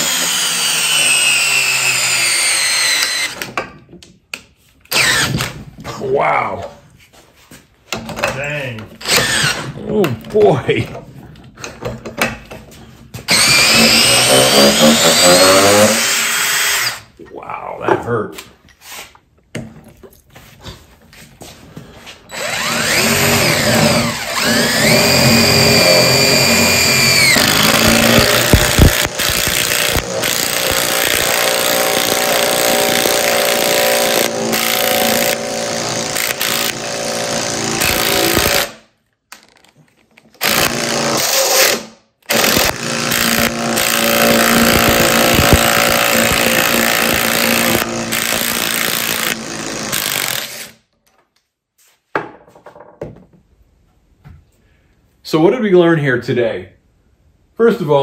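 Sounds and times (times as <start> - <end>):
impact driver whining and hammering: 0.0 - 3.9, 4.9 - 5.8, 9.0 - 9.8, 11.6 - 17.0, 22.3 - 38.8, 40.4 - 50.8.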